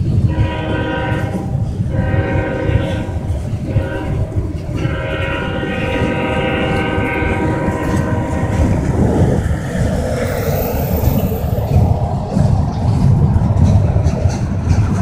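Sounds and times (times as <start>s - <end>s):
freight train rumbling on rails: 0.0s - 15.0s
locomotive air horn: 0.2s - 9.1s.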